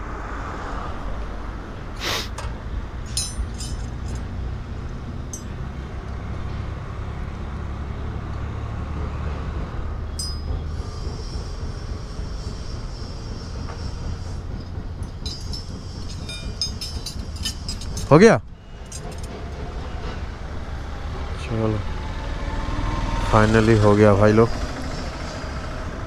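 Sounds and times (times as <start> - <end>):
metal spanners clinking: 2.4 - 4.4, 5.3 - 5.6, 10.2 - 10.6, 14.6 - 19.3
steady low rumble: 9.0 - 19.3.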